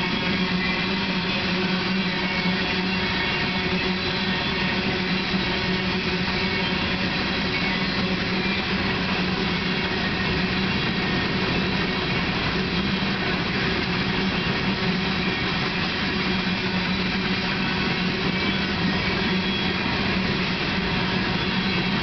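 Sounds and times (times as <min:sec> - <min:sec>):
steel wheels rolling on rail: 0:00.0 - 0:22.0.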